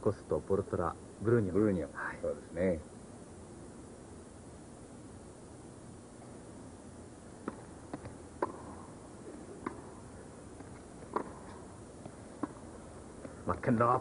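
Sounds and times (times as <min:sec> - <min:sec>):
faint arena hush: 0:00.0 - 0:14.0
tennis ball struck by rackets: 0:07.4 - 0:13.4.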